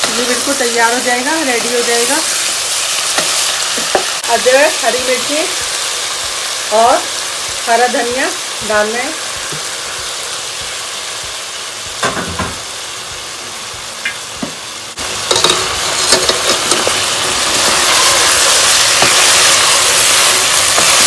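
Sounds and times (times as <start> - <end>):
vegetables sizzling in oil: 0.0 - 21.0
spatula stirring and knocking pan: 15.2 - 21.0.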